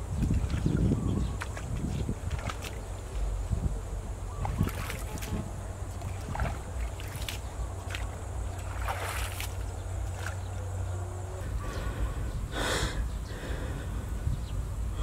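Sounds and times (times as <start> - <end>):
water splashes: 0.0 - 3.4, 4.3 - 10.8
steady low rumble: 0.0 - 15.0.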